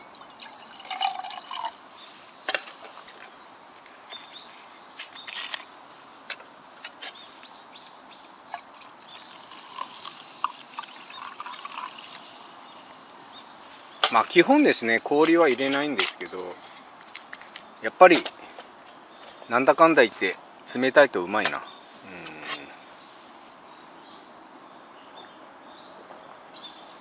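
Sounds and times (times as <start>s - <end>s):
can and mug clinking: 0.0s - 1.8s, 8.5s - 12.9s
carbonated water glugging: 0.0s - 1.8s, 8.5s - 12.4s
drink pouring into metal mug: 0.0s - 1.8s, 8.5s - 12.9s.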